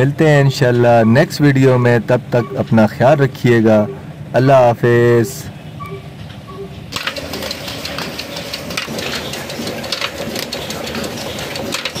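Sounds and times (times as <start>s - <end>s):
stationary engine knocking: 6.9s - 12.0s.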